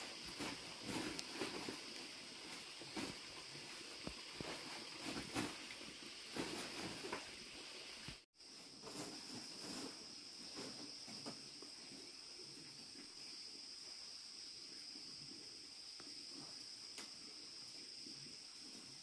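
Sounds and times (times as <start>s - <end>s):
rummaging clothes and plastic bag: 0.0s - 7.4s
high-pitched insect chorus: 0.0s - 19.0s.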